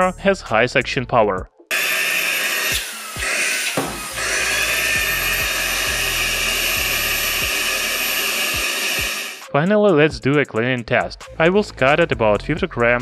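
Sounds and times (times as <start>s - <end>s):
handheld vacuum cleaner whining: 1.7s - 9.5s.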